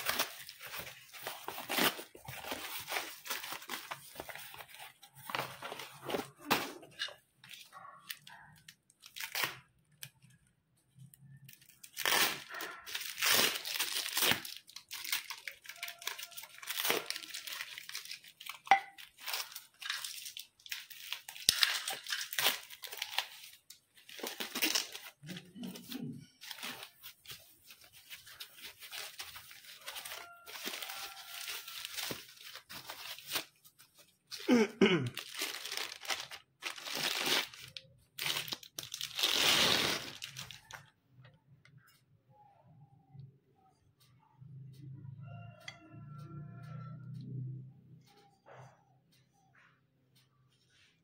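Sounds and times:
packing wrap tearing and crinkling: 0.0 - 7.0, 8.9 - 9.7, 11.3 - 40.8.

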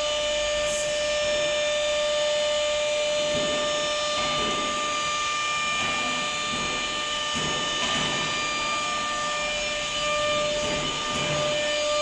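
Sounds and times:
cnc router high-pitched whine: 0.0 - 12.0.

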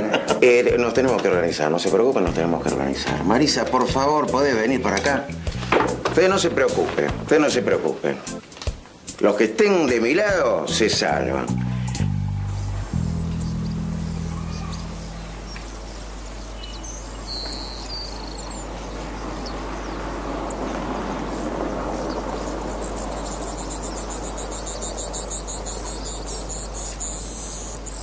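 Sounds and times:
outdoor ambient noise: 0.0 - 28.0
bird chirps: 11.5 - 28.0
fast high chirping trill: 11.8 - 19.0, 22.0 - 28.0.

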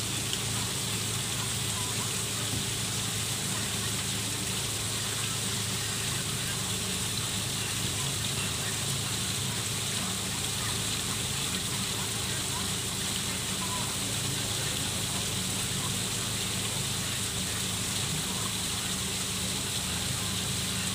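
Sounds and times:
waterfall splashing over rocks: 0.0 - 20.9.

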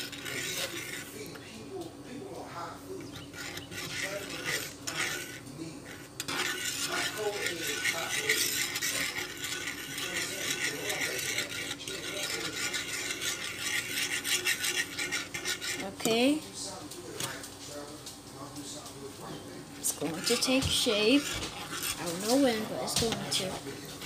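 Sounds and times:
utensil scraping a frying pan: 0.0 - 1.6, 2.4 - 16.4, 19.8 - 24.0.

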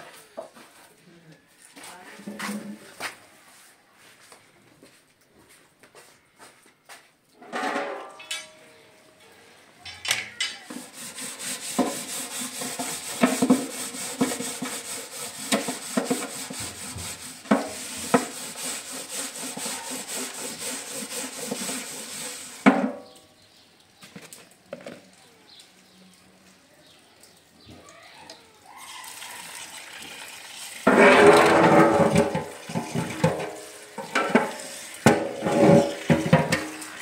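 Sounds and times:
scouring pad scrubbing metal tray: 9.9 - 23.0, 30.8 - 37.0
loud scrape: 10.4 - 22.7, 30.9 - 36.9.

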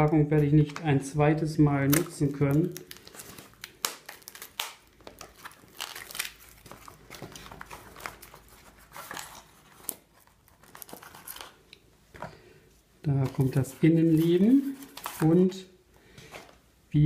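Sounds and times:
packing tape and cardboard crinkling: 1.8 - 11.6, 13.2 - 15.4.

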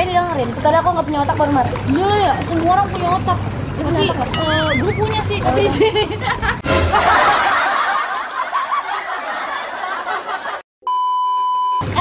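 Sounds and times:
electronic beep: 4.4 - 5.3
women laughing: 4.9 - 10.6.

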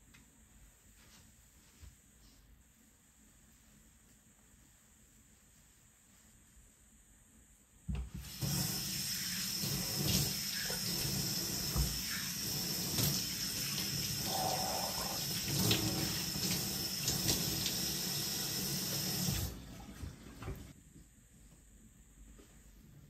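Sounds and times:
sink tap running: 8.2 - 20.7.

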